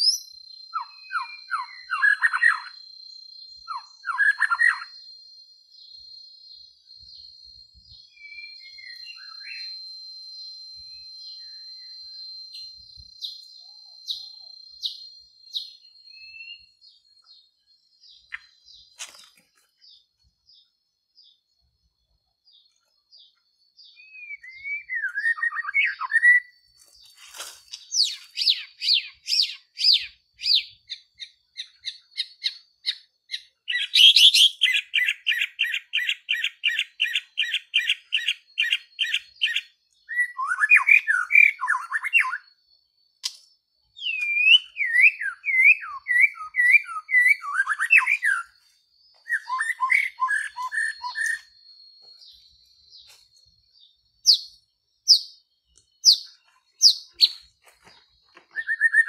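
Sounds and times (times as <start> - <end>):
faint high whine: 0.0 - 30.3
songbird singing varied song: 0.0 - 59.0.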